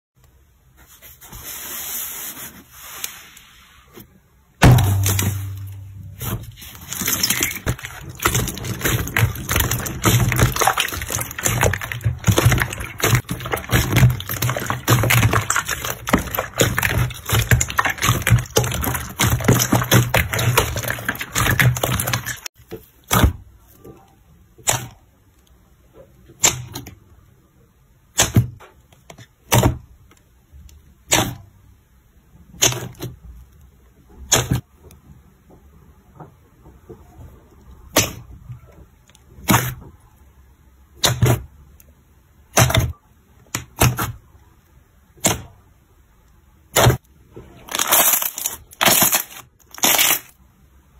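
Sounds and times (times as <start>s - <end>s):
slime crackling and popping: 4.6s - 22.5s, 47.6s - 50.4s.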